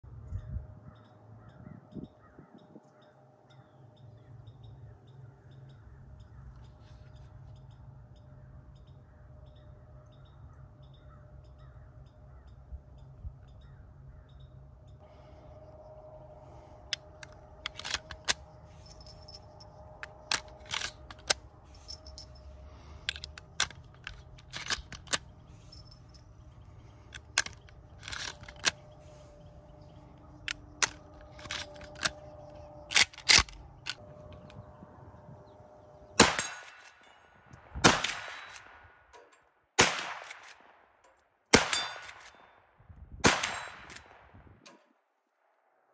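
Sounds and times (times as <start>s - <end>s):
rifle action metallic clicks: 16.8s - 26.2s, 26.8s - 28.9s, 30.4s - 34.6s, 37.9s - 40.6s.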